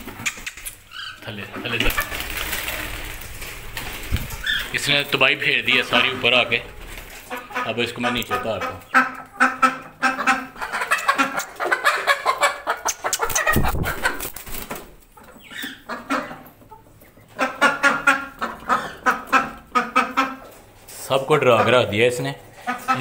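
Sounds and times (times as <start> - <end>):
hen clucking and squawking: 4.0 - 14.4, 15.1 - 23.0.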